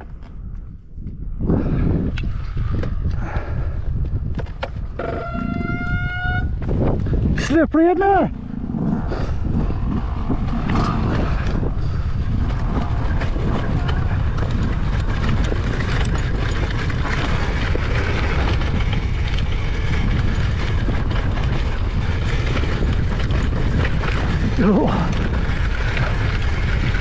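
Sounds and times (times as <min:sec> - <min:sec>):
motorcycle engine rumble: 0:00.1 - 0:27.0
motorcycle knocking and rattling: 0:09.9 - 0:27.0.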